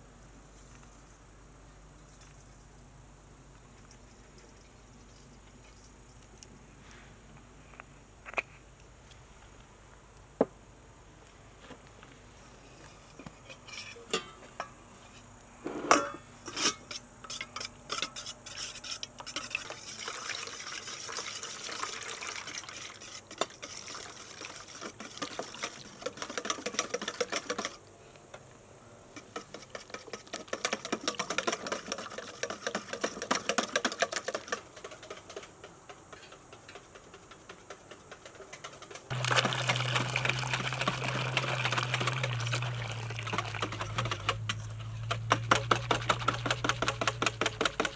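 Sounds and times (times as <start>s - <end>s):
water pouring: 19.4s - 26.4s, 39.1s - 44.4s.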